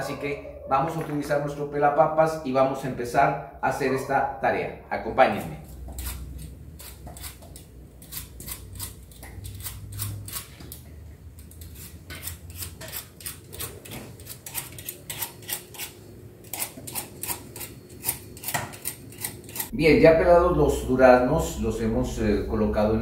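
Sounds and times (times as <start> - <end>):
peeler scraping fruit skin: 5.3 - 19.7.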